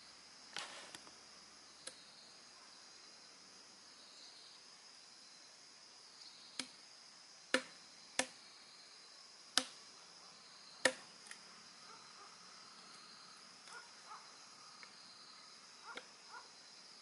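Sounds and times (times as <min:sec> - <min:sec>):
insects chirring: 0:00.0 - 0:17.0
cleaver chopping on wooden board: 0:07.5 - 0:08.4, 0:10.8 - 0:11.0.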